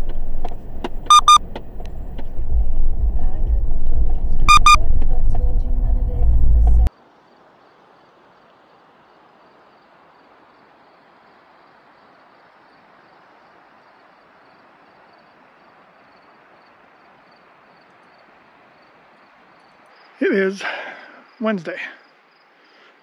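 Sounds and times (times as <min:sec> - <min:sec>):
cricket chirping: 0:00.0 - 0:02.1, 0:04.5 - 0:04.8, 0:07.2 - 0:23.0.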